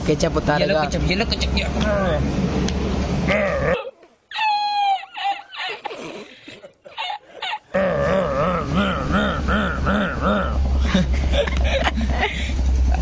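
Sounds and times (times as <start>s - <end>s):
man's wheezing laughter: 4.4s - 12.6s
steady low hum: 7.3s - 13.0s.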